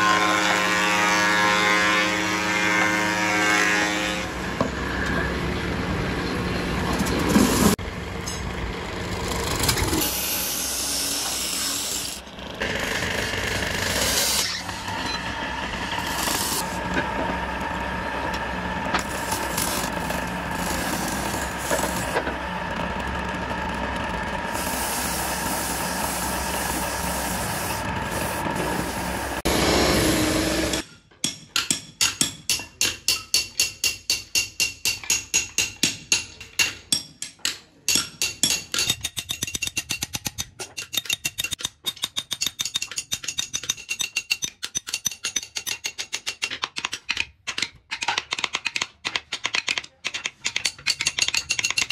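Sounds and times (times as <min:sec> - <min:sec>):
wood lathe running: 0:10.1 - 0:30.8
gouge scraping spinning wood: 0:12.6 - 0:30.8.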